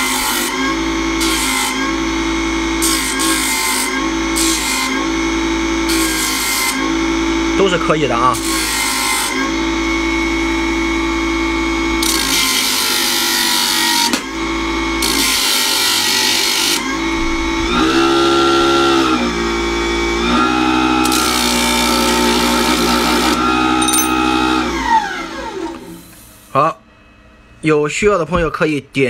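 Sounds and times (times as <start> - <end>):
small motor whining: 14.9 - 26.3
harsh grinding on sanding disc: 15.0 - 24.6.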